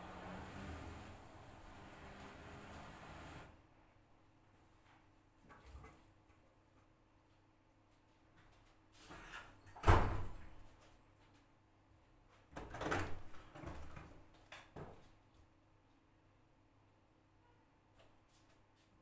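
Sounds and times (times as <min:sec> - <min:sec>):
faint motor hum: 0:00.0 - 0:04.0.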